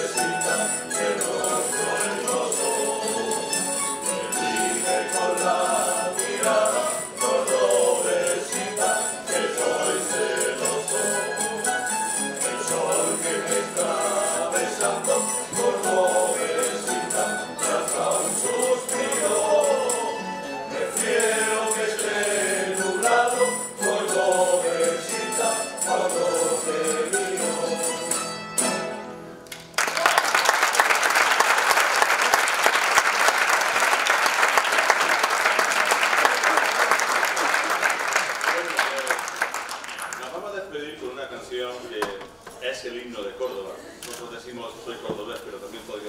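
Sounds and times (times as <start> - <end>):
male chorus singing: 0.0 - 28.2
strummed guitars: 0.0 - 29.8
audience applause: 29.5 - 40.4.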